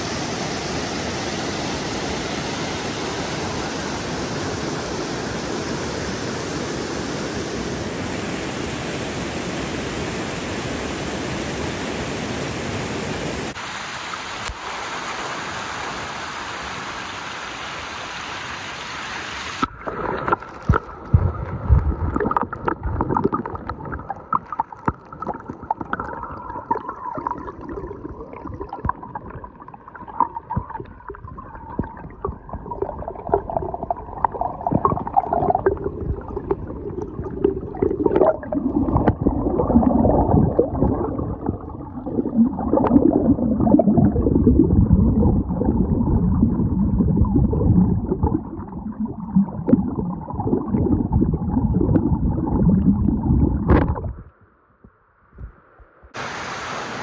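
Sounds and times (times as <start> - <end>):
stream rushing over rocks: 0.0 - 20.9, 56.2 - 57.0
underwater gurgling water: 19.5 - 54.4
small knocks underwater: 20.2 - 26.0, 30.0 - 32.7, 53.5 - 55.5.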